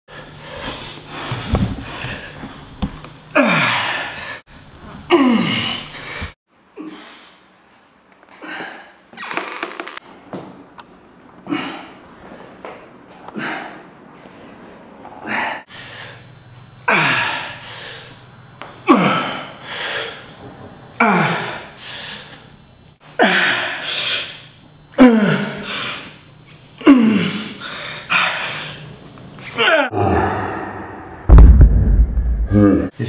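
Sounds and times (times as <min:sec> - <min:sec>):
man grunting: 0:05.1 - 0:05.8, 0:29.6 - 0:31.0, 0:32.5 - 0:33.0.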